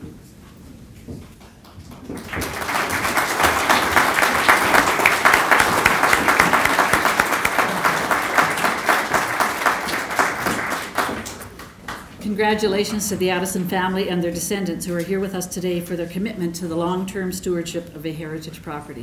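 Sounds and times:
audience applauding: 1.8 - 12.2.

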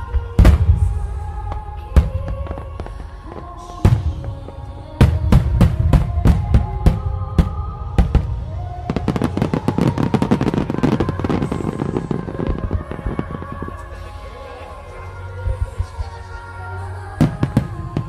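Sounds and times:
music: 0.0 - 18.0
rapid firework crackle: 2.0 - 14.5.

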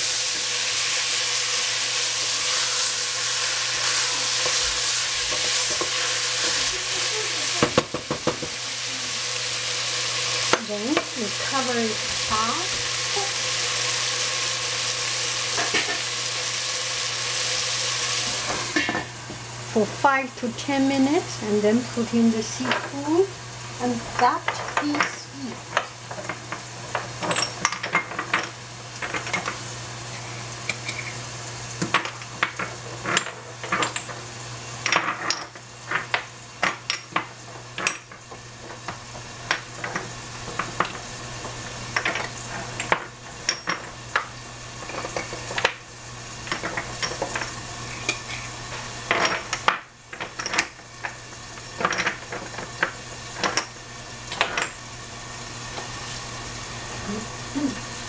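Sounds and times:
food sizzling: 0.0 - 58.0
utensils clinking against pot: 3.8 - 8.6, 15.5 - 16.1, 18.2 - 19.2, 22.6 - 23.0, 23.8 - 29.6, 30.6 - 31.2, 31.8 - 45.8, 46.4 - 54.8.

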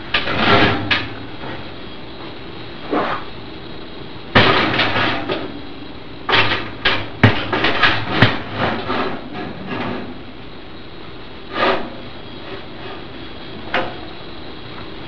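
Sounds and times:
knocks and rattles: 0.0 - 1.7, 4.3 - 5.5, 6.3 - 10.2.

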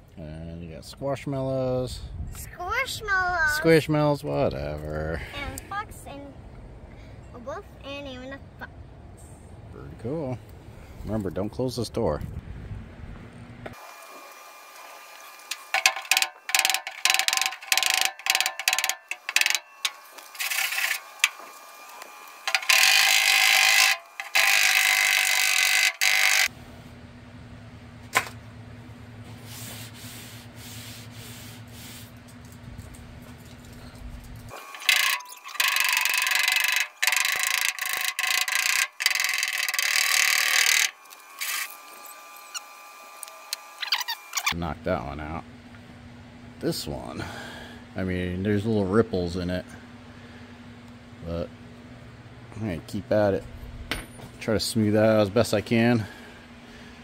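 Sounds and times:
steady low hum: 14.4 - 57.0
tool scraping sheet metal: 14.8 - 26.5, 34.5 - 42.7.

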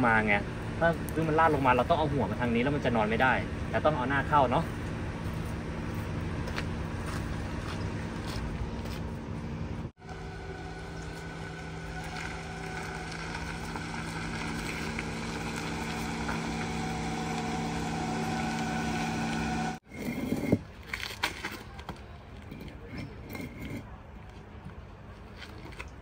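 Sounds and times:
car engine humming: 0.0 - 19.8.

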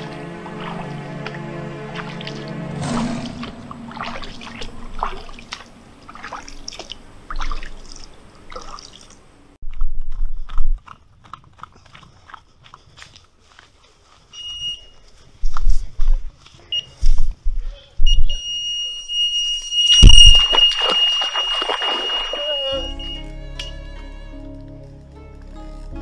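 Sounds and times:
music: 0.0 - 4.8, 22.4 - 26.0
water splashing and dripping: 0.0 - 9.6, 20.0 - 22.7.

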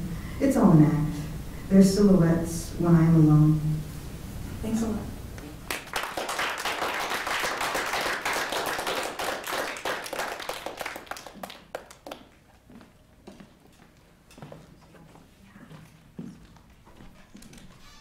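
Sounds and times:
small audience applauding: 5.6 - 12.6.

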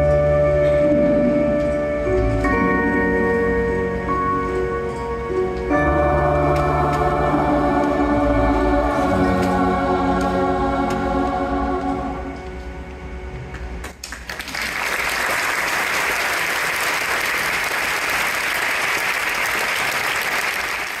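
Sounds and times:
choir holding chord: 0.0 - 13.4
audience applause: 13.9 - 21.0.

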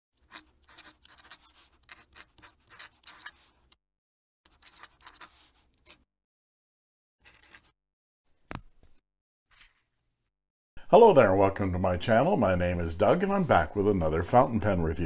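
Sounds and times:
pen nib scratching paper: 0.2 - 3.7, 4.5 - 6.0.

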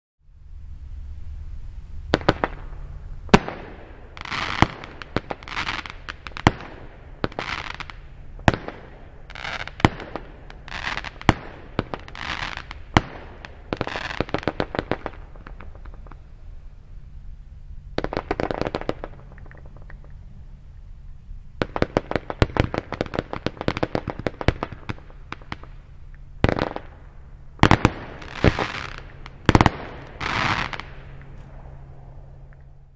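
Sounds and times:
fireworks bangs: 1.7 - 17.0, 17.8 - 32.9
firework pops: 18.0 - 20.2.

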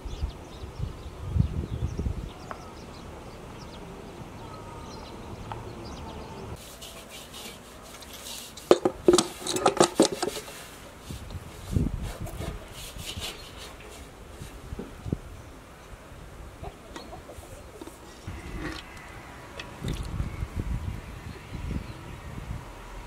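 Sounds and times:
faint outdoor background: 0.0 - 23.0
metal cookware clanking: 8.7 - 10.4.

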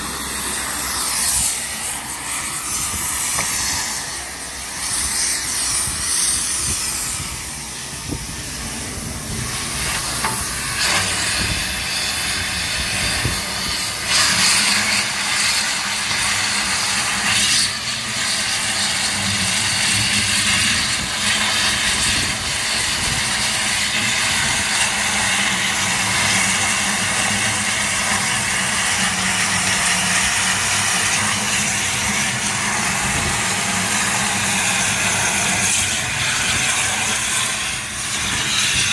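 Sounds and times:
cutting torch hissing: 0.0 - 38.9.

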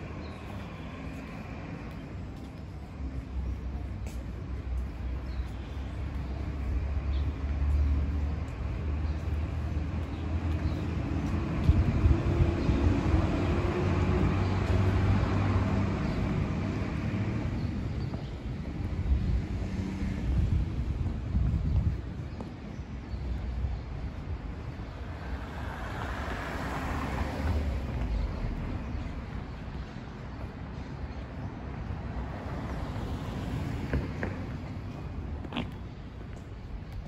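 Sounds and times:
street traffic rumble: 0.0 - 37.0
car passing: 24.9 - 29.7.

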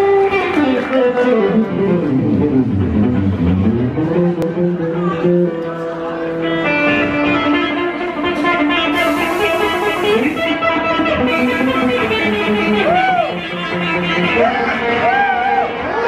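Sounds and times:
electric guitars: 0.0 - 16.0
drums and cymbals: 8.9 - 10.4.

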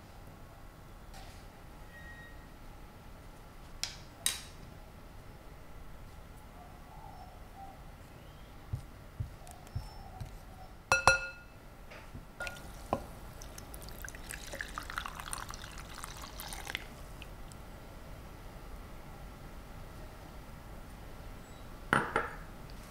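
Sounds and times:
ringing glass clink: 10.9 - 11.6
water trickling into flour: 12.4 - 17.6.

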